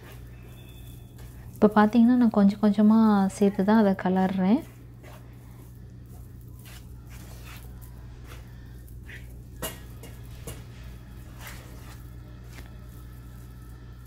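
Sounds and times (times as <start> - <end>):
steady low hum: 0.0 - 14.0
spoon scraping metal pan: 8.3 - 12.0.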